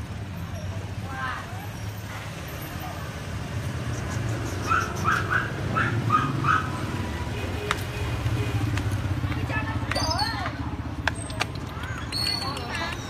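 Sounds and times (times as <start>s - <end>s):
street traffic rumble: 0.0s - 13.0s
puppy yipping: 4.6s - 6.8s.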